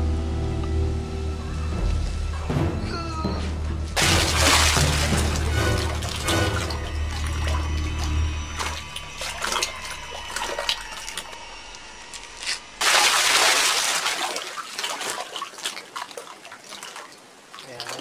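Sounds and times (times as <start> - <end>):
loud rush of splashing: 4.0 - 11.4, 12.8 - 18.0
water sloshing in a well: 4.0 - 18.0.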